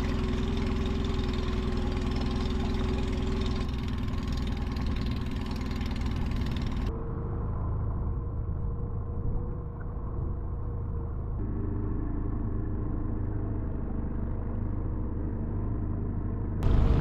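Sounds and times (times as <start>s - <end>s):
outboard motor running: 0.0s - 6.9s, 11.4s - 17.0s.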